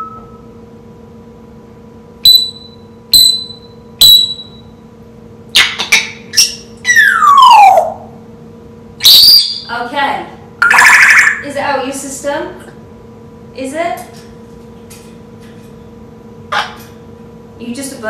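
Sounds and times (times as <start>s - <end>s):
parrot imitating beeps: 0.0s - 0.4s, 2.3s - 4.6s, 5.6s - 8.0s, 9.0s - 9.7s, 10.6s - 11.5s
parrot whistles and squawks: 2.3s - 4.6s, 5.6s - 8.1s, 9.0s - 9.7s, 10.6s - 11.4s
loud parrot call: 5.6s - 8.1s, 9.0s - 9.7s, 10.6s - 11.4s.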